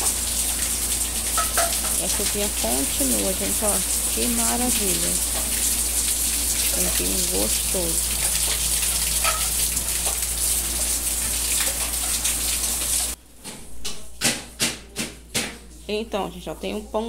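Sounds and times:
steady rain hissing: 0.0s - 13.2s
water dripping off a roof: 0.0s - 13.2s.

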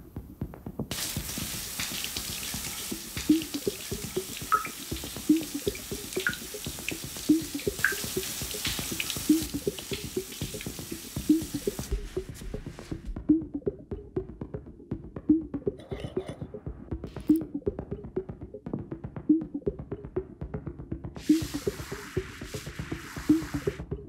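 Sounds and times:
shower water spraying: 0.9s - 12.9s, 21.2s - 23.8s.

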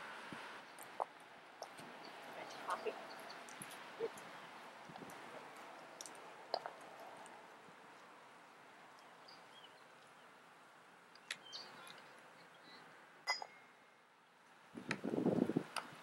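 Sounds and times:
faint bird chirps: 11.2s - 13.8s.

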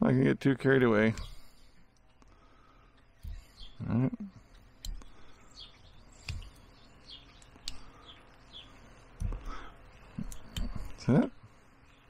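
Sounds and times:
birds chirping: 0.0s - 12.0s
knife carving wood: 4.4s - 5.2s, 6.1s - 6.7s, 9.2s - 11.0s.

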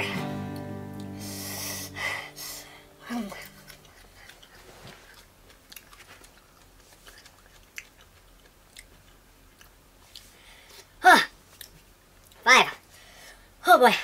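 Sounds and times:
low hum: 0.0s - 4.6s
chewing mouth clicks: 3.6s - 10.3s.

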